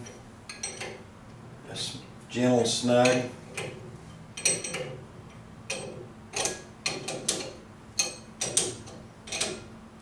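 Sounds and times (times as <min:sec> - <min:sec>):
metal fittings clicking: 0:05.7 - 0:09.7.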